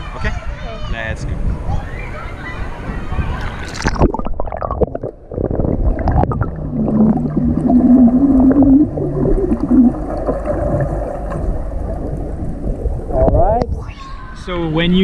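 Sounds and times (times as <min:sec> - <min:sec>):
water gurgling underwater: 0:03.2 - 0:13.8
bubbles blown underwater: 0:03.4 - 0:13.4.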